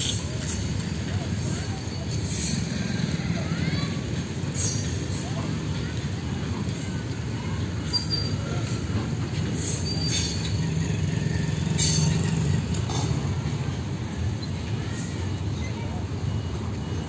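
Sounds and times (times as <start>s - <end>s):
freight wagons rumbling on track: 0.0s - 17.0s
high-pitched metallic squeals: 4.5s - 5.0s, 9.6s - 12.6s.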